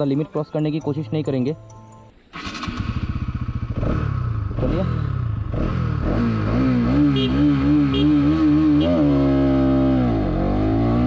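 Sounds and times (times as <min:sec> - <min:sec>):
motorcycle engine revving: 0:02.3 - 0:11.0.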